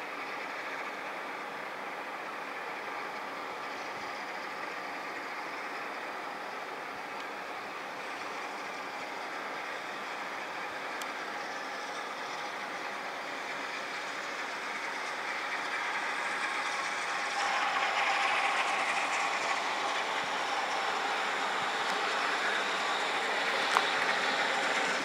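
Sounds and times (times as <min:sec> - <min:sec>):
steam locomotive approaching: 0:00.0 - 0:25.0
rail clatter: 0:06.8 - 0:25.0.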